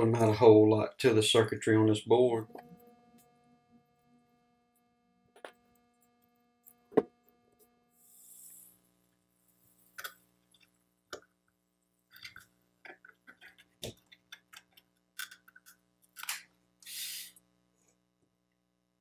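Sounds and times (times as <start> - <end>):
low steady hum: 0.0 - 16.8
short hiss: 16.8 - 17.4.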